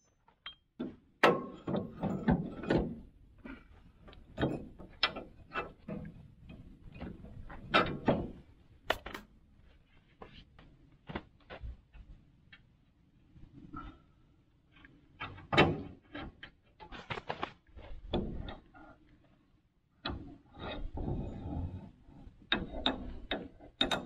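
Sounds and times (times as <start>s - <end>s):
metal clanks and rattles: 0.0s - 9.2s, 20.0s - 24.0s.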